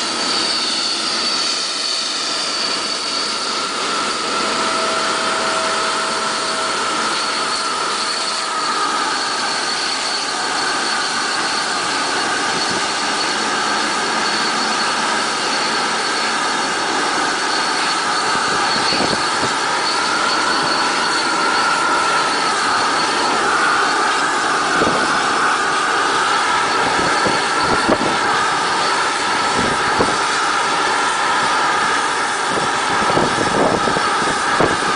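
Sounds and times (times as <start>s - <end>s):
jet engine whine: 0.0s - 34.9s.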